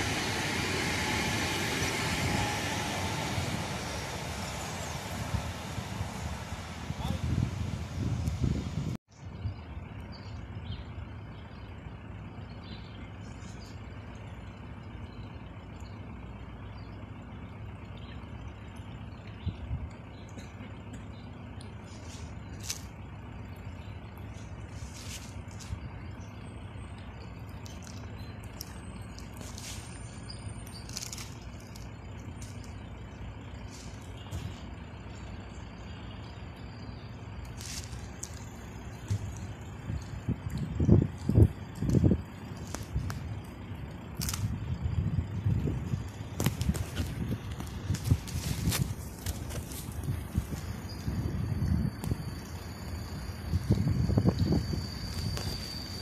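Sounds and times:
low outdoor rumble: 0.0s - 56.0s
bird chirps: 9.2s - 22.6s, 23.4s - 42.5s
faint bird chirps: 25.7s - 40.0s.

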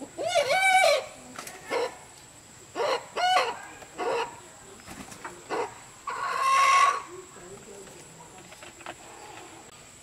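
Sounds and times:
chickens clucking: 0.0s - 7.6s.

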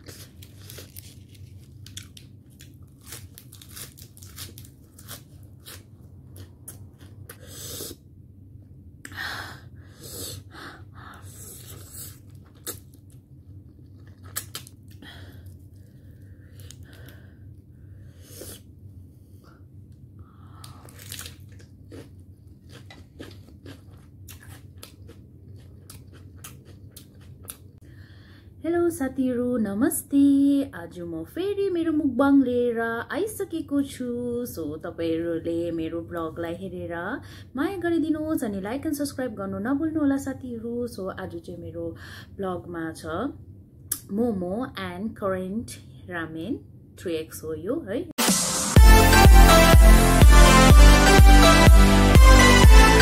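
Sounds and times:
low steady hum: 0.0s - 48.1s
wet chewing and smacking: 11.7s - 15.8s, 20.9s - 27.8s
crunchy bites: 20.6s - 27.7s.

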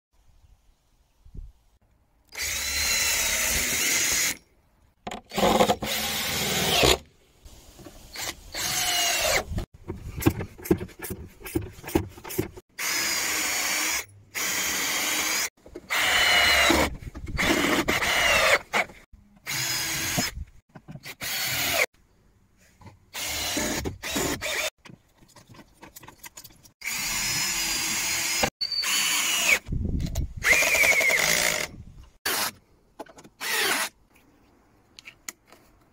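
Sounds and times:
cordless drill whine: 8.2s - 9.5s, 26.8s - 29.7s
drill clicking: 30.4s - 31.7s.

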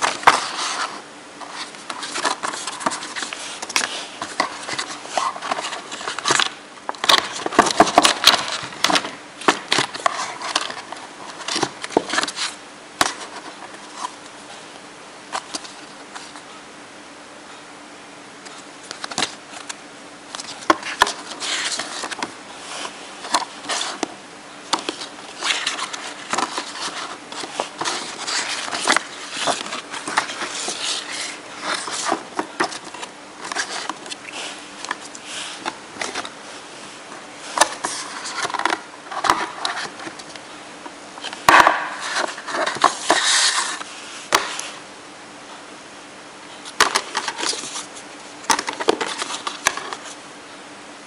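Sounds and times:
paper and cardboard rustling: 0.0s - 14.3s, 15.3s - 16.5s, 18.4s - 40.5s, 41.2s - 44.8s, 46.5s - 50.2s
faint steady hum: 0.0s - 51.0s.

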